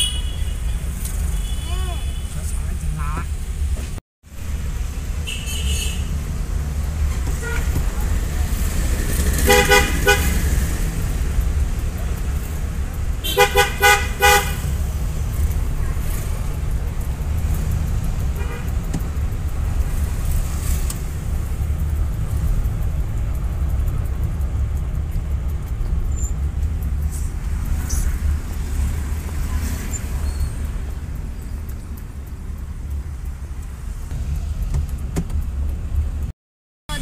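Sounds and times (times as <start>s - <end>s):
car engine and road rumble: 0.0s - 36.3s.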